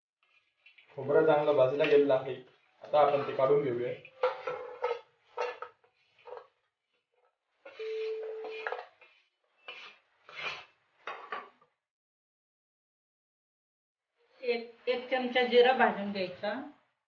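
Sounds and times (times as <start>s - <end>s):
wooden spatula scraping iron griddle: 0.2s - 7.0s, 7.6s - 11.6s.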